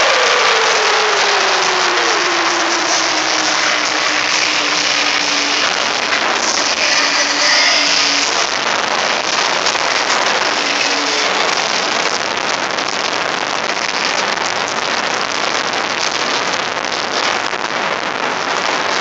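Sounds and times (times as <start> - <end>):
jet engine running: 0.0 - 14.3.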